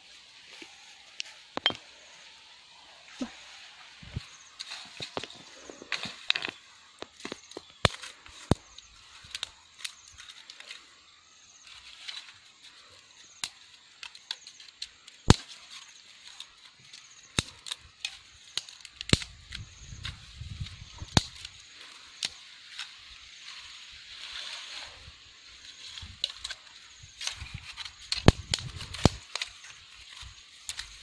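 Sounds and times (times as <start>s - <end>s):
dry twigs snapping: 13.4s - 19.7s, 21.0s - 21.6s, 27.2s - 31.0s.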